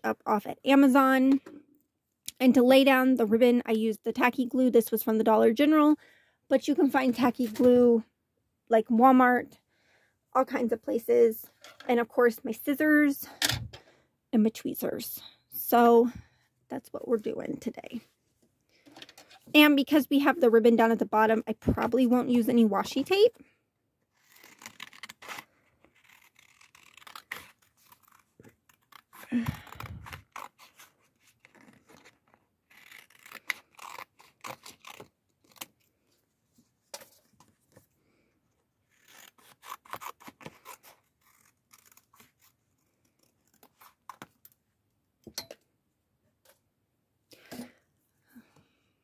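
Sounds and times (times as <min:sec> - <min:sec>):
scissors snipping paper: 0:38.9 - 0:44.4.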